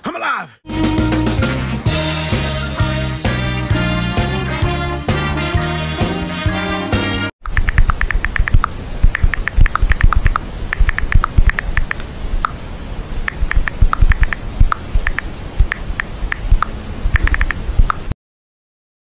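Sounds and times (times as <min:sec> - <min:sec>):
paws tapping on laptop keyboard: 0:07.5 - 0:12.0, 0:13.3 - 0:18.0.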